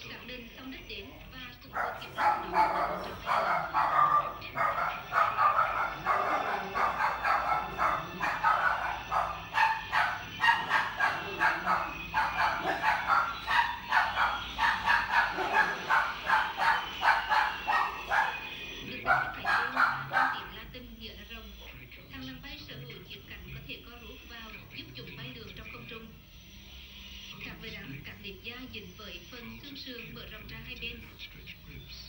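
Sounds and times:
animal yapping rapidly: 1.6 - 20.5.

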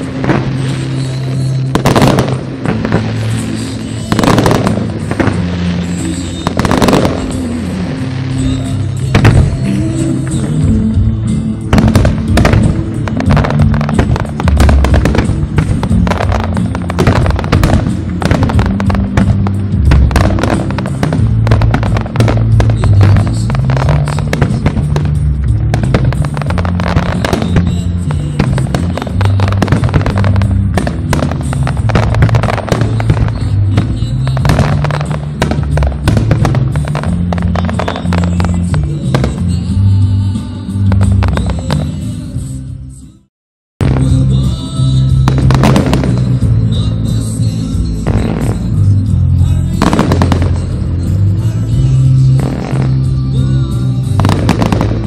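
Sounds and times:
fireworks bursting: 0.0 - 42.4, 43.8 - 55.0
music with low bass line: 0.0 - 55.0.

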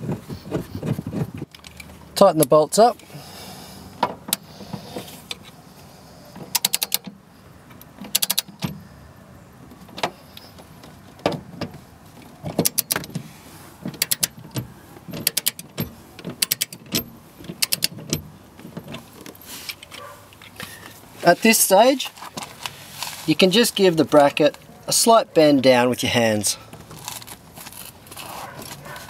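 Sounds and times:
hand ratchet clicking: 6.5 - 7.0, 8.1 - 8.5, 14.0 - 14.4, 15.2 - 18.2.

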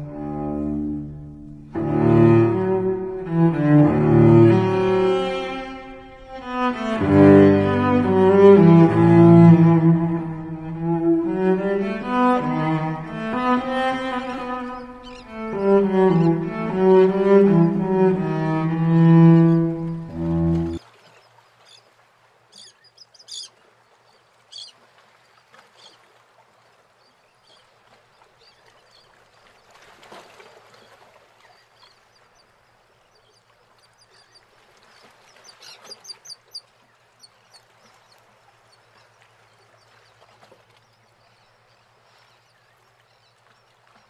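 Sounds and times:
sea waves washing in: 0.0 - 20.9
birds chirping: 13.0 - 17.9.

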